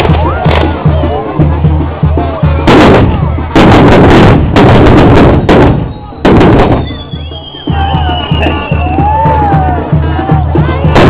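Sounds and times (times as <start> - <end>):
fireworks crackling blasts: 0.0 - 11.0
high falling whistle: 5.4 - 9.4.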